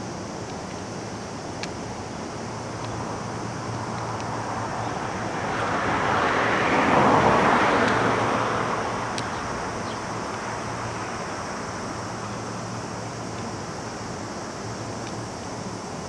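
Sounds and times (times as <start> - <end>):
steady low hum: 0.0 - 16.0
vehicle passing by: 4.3 - 11.1.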